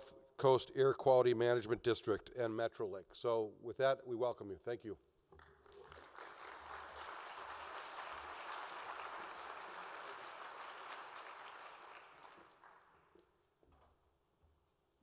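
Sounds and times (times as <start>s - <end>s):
audience applauding: 5.4s - 13.2s.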